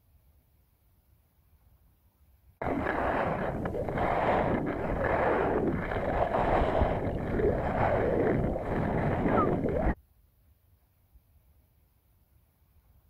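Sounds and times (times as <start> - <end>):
skis scraping over snow: 2.6 - 10.0
wind rushing over microphone: 2.6 - 10.0.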